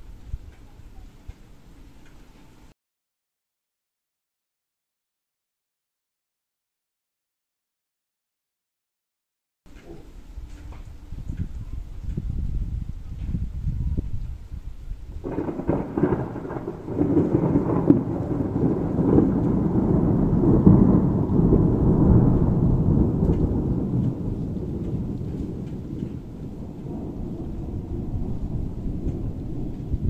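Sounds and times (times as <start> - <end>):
heavy rain: 10.0 - 30.0
thunder crack and rumble: 10.9 - 30.0.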